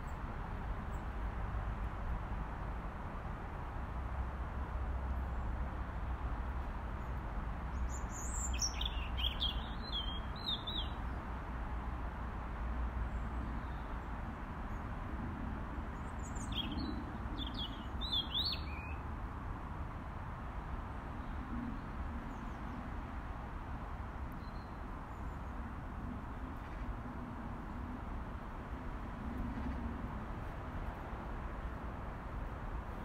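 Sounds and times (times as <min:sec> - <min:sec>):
robin singing: 0:07.8 - 0:11.0, 0:16.2 - 0:19.0.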